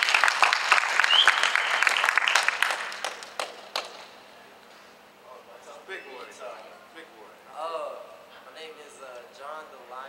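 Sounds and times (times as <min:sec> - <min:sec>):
audience applauding: 0:00.0 - 0:04.1.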